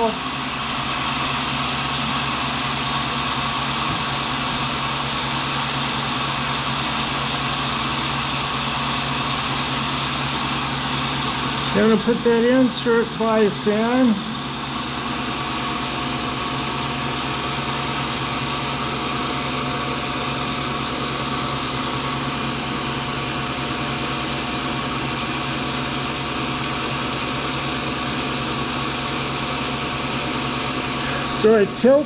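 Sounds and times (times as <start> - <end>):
electric motor humming: 27.3 - 32.0.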